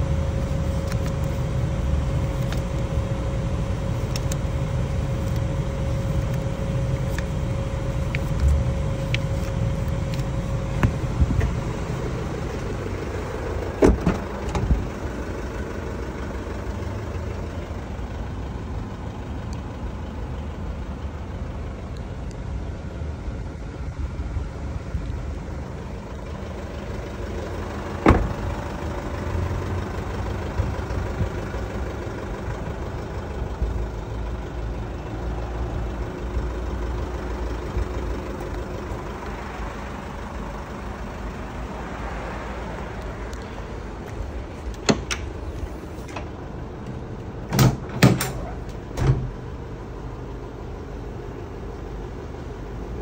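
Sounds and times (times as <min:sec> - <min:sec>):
low outdoor rumble: 0:00.0 - 0:53.0
latch clicks and clunks: 0:13.7 - 0:14.8, 0:28.0 - 0:28.5, 0:44.6 - 0:45.4, 0:46.0 - 0:49.4.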